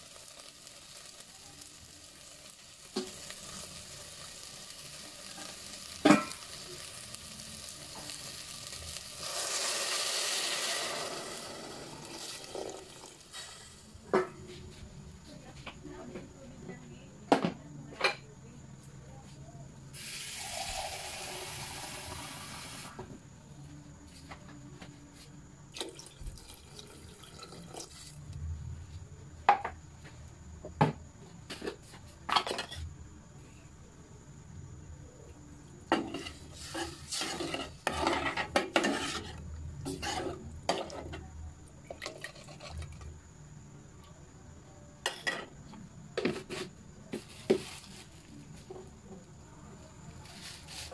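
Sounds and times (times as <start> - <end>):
water running from a tap: 25.8 - 28.0
metal ladle scraping a pot: 36.0 - 41.0.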